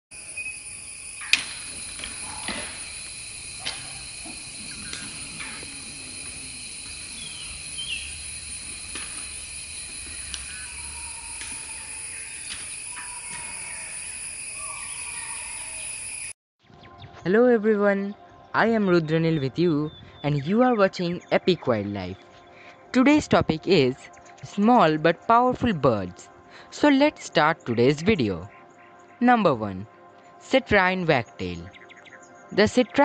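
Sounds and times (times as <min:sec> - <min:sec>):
high-pitched drone: 0:00.2 - 0:16.4.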